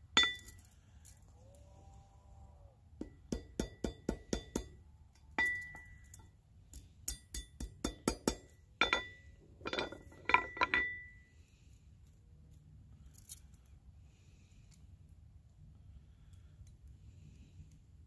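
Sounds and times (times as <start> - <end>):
hammer striking metal pin: 0.2 - 0.6, 3.0 - 4.8, 5.4 - 11.2.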